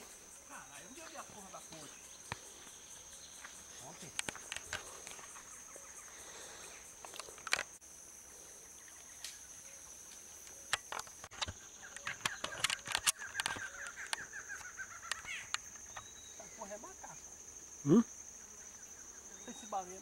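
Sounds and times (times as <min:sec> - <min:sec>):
high-pitched insect drone: 0:00.0 - 0:20.0
rapid chattering animal call: 0:11.8 - 0:15.8.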